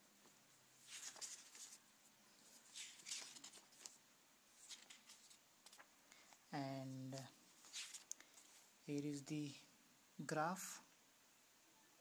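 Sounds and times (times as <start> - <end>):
paper pages turning: 0.2 - 6.4, 7.0 - 8.6.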